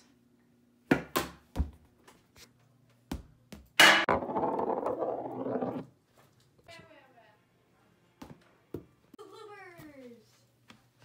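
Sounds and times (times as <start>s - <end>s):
cue tip striking pool ball: 3.8s - 5.8s
pool ball rolling on wood: 3.8s - 5.9s.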